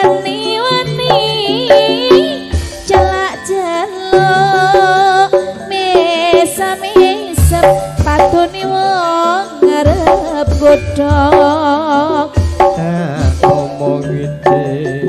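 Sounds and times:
gliding melody line: 0.0 - 15.0
hand drum strokes: 9.6 - 15.0.

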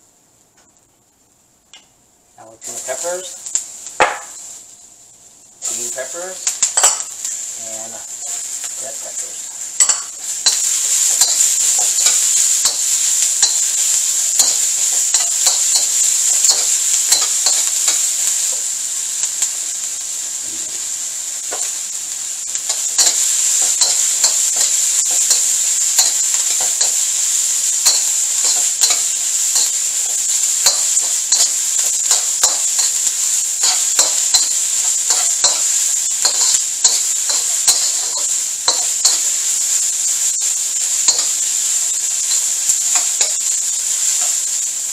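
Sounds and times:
vegetables sizzling in hot oil: 1.7 - 44.9
metal spatula scraping a wok: 8.1 - 18.6, 22.5 - 44.6.

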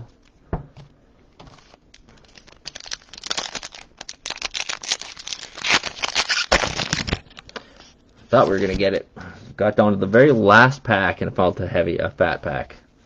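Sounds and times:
plastic wrapper crinkling: 1.4 - 8.9.

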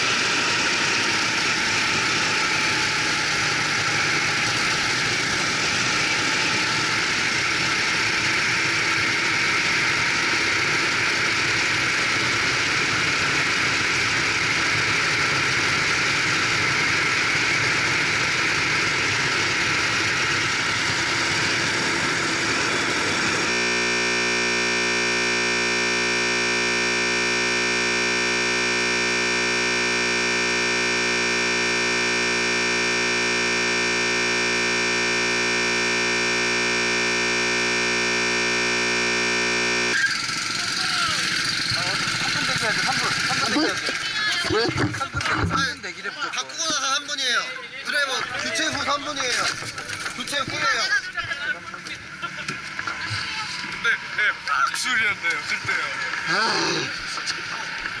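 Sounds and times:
racing kart engine: 0.0 - 58.0
drone of held tones: 15.9 - 42.6.

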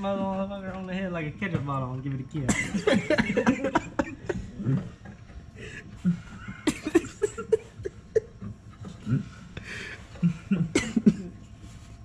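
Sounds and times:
men laughing: 2.5 - 11.4.

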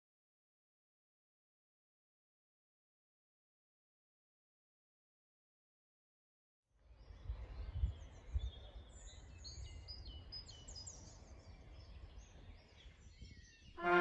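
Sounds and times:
birds chirping and singing: 6.9 - 14.0.

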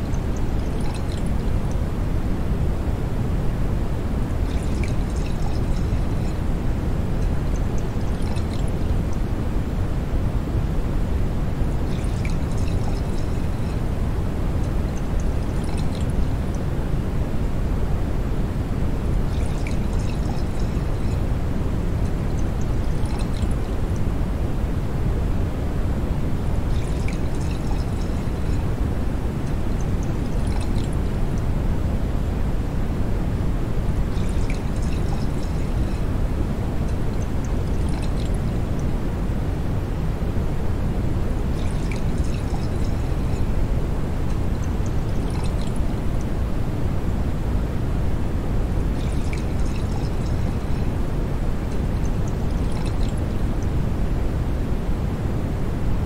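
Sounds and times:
beer fizzing: 0.1 - 1.5, 4.3 - 6.4, 11.7 - 13.9, 19.2 - 21.2, 22.0 - 23.8, 26.6 - 28.8, 29.4 - 31.0, 34.0 - 36.1, 36.8 - 38.7, 41.4 - 43.6, 44.4 - 45.8, 48.8 - 51.0, 51.6 - 53.3
bubbles popping: 37.7 - 38.3.

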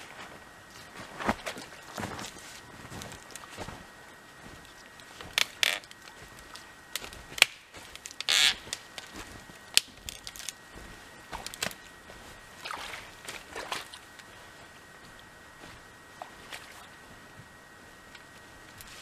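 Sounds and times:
rustling and scraping by hand: 0.0 - 13.6, 14.2 - 19.0.

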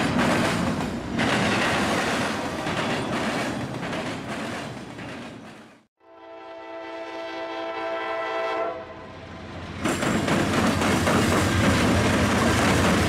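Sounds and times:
freight train wheels clattering: 0.0 - 5.8, 9.8 - 13.0.

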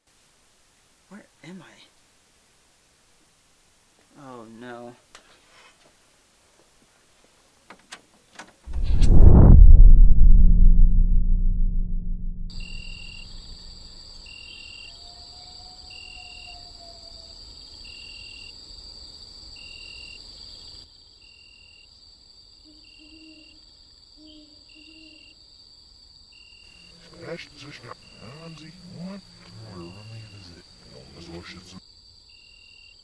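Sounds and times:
insect drone: 10.2 - 33.0
crickets chirping: 12.5 - 33.0
owl hooting: 22.6 - 23.6.

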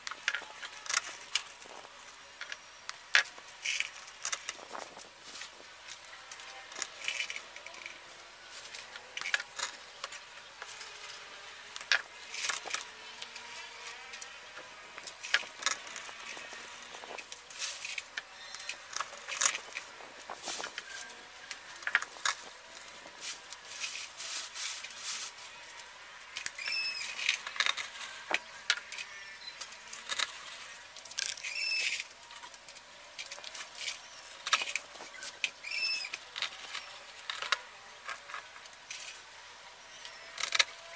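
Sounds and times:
plastic plants rustling and crackling: 0.0 - 40.9
short squeaks: 26.5 - 28.3, 29.0 - 32.5, 33.6 - 37.5.

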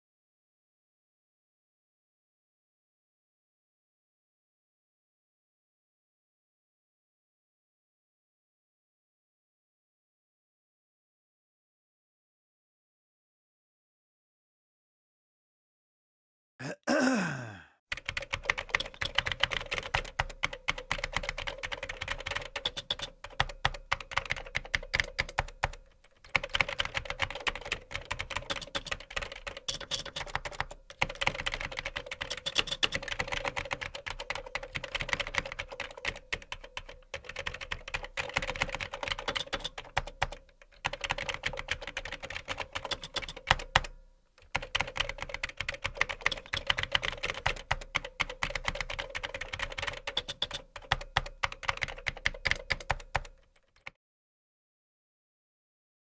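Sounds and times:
fast typing on keyboard: 17.9 - 54.0.

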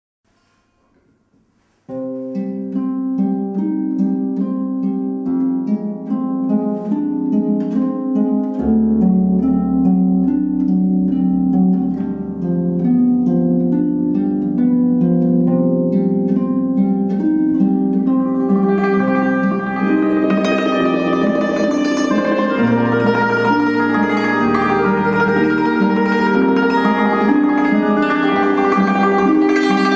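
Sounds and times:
harp melody: 1.9 - 29.9
low sustained bass tone: 6.8 - 29.9.

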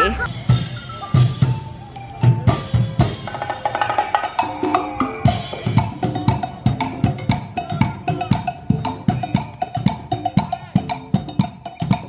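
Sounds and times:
percussion band playing: 0.0 - 12.0.

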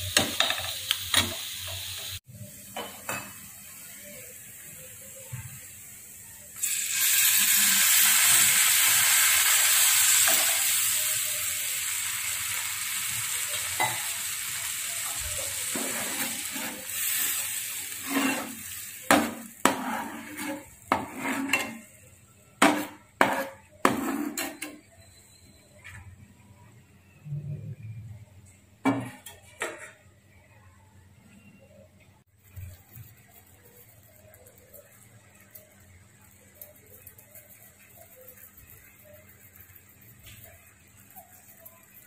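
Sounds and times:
liquid sizzling in hot pan: 0.0 - 24.6
spatula scraping pan: 15.1 - 22.0, 22.6 - 24.9.

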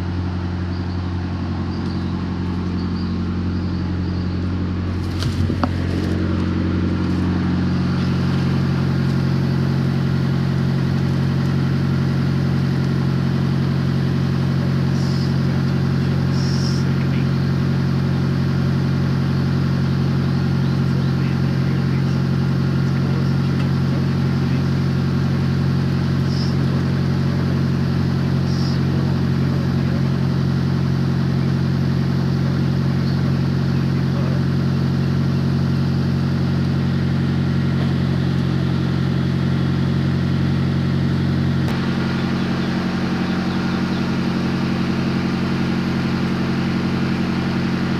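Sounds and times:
truck diesel idling: 0.0 - 47.9.

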